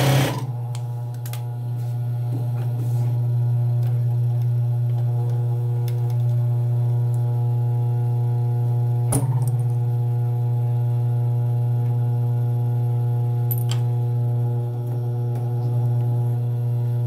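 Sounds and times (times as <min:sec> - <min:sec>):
sewing machine motor humming: 0:00.0 - 0:00.5.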